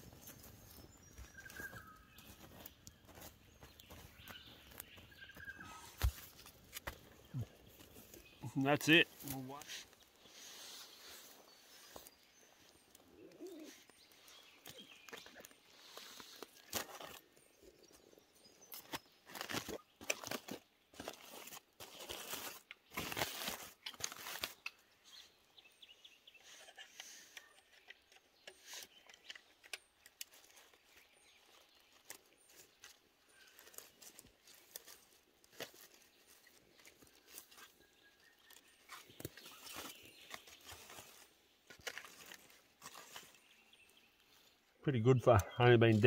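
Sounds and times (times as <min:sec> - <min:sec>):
aluminium foil crinkling: 0:18.8 - 0:24.6, 0:38.4 - 0:43.4.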